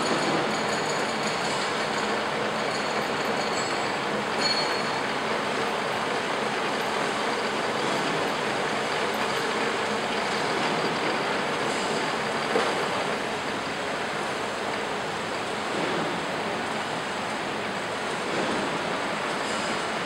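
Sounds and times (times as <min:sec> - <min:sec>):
metal lathe running: 0:00.0 - 0:20.0.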